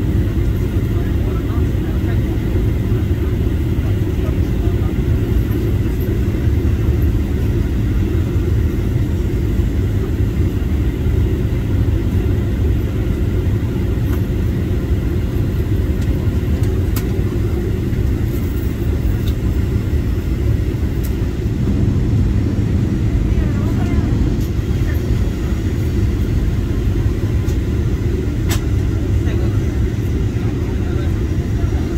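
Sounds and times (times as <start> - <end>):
airliner engines rumbling: 0.0 - 31.9
rushing air: 19.6 - 28.0.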